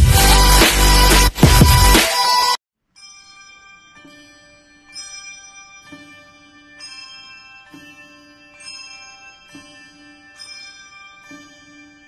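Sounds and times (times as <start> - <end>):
chiming bell-like music: 2.9 - 12.0.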